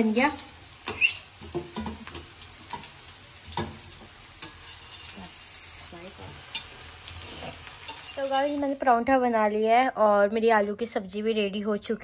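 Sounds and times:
bread sizzling in oil: 0:00.0 - 0:09.5
spatula clinking on pan: 0:00.9 - 0:05.2, 0:07.8 - 0:08.3.

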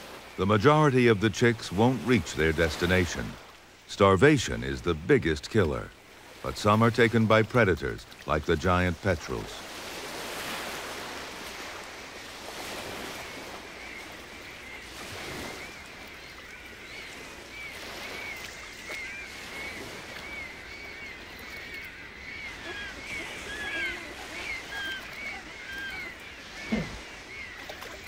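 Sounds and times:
sea surf splashing: 0:00.0 - 0:28.0
high bird calls: 0:12.3 - 0:28.0.

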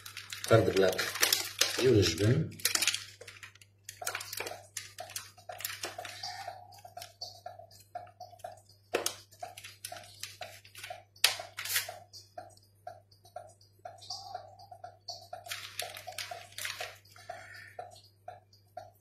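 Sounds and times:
plastic wrapping crinkling: 0:00.0 - 0:07.4, 0:08.9 - 0:12.0, 0:15.4 - 0:17.3
faint regular ticking: 0:00.0 - 0:19.0.

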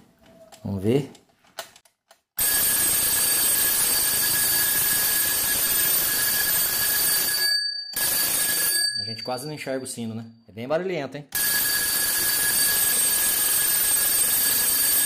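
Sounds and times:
alarm clock bells ringing: 0:02.4 - 0:10.1, 0:11.4 - 0:15.0.

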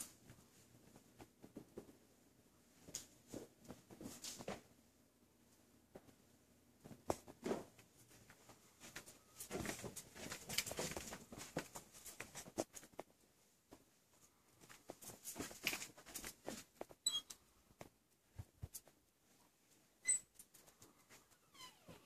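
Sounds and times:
footsteps on carpet: 0:06.9 - 0:13.0.

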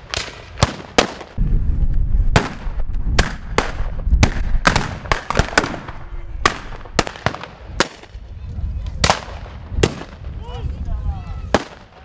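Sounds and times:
musket shots cracking: 0:02.4 - 0:08.1.

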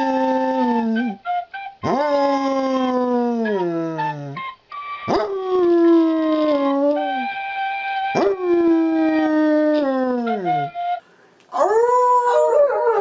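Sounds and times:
dog howling: 0:01.8 - 0:04.0, 0:05.1 - 0:07.3, 0:11.5 - 0:13.0.

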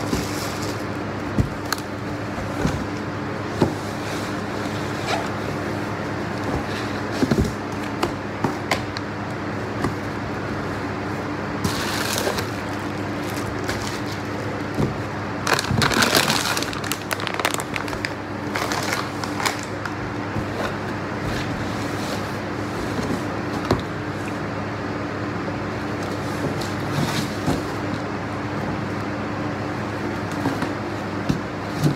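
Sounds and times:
steady low hum: 0:00.0 - 0:31.9
plastic bags rustling: 0:11.6 - 0:21.7.

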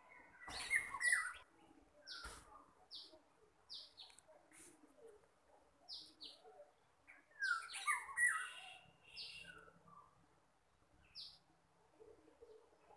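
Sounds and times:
small birds chirping: 0:00.0 - 0:12.9.

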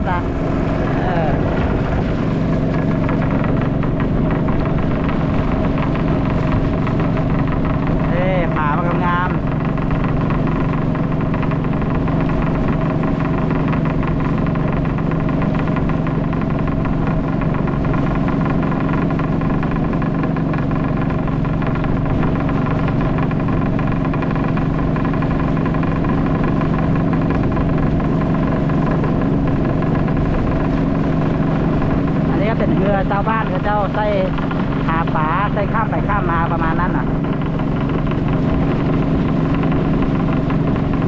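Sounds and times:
motorboat engine running: 0:00.0 - 0:41.0.

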